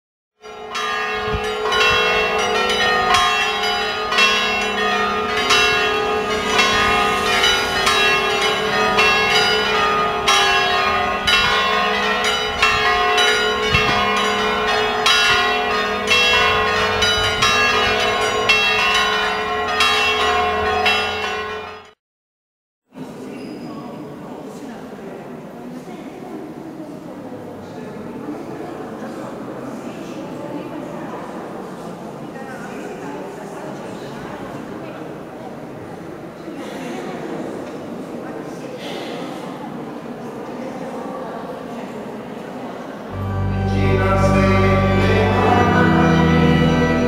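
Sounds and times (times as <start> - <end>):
church bells pealing: 0.4 - 22.0, 43.1 - 47.0.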